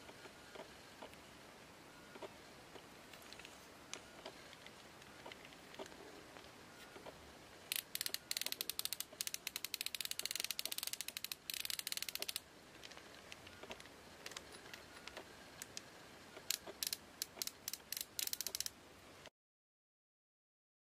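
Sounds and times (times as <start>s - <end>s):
fishing reel drag clicking: 7.7s - 12.4s, 16.5s - 18.7s.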